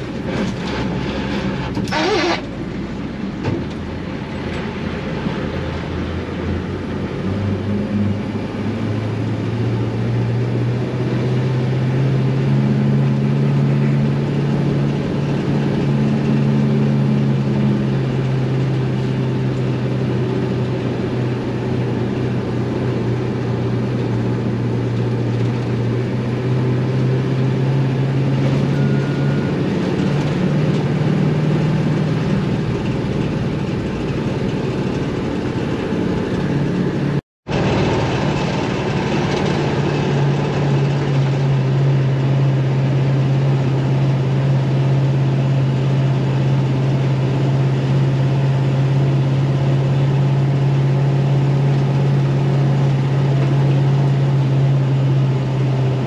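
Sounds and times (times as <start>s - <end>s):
diesel truck engine droning: 0.0s - 56.0s.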